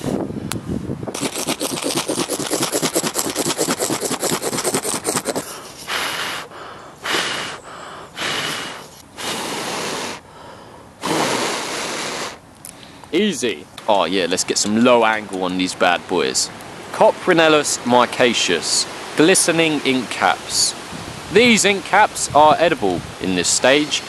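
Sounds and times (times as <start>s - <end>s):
person blowing on ember: 1.1s - 12.4s
ferro rod scraping: 1.2s - 6.2s.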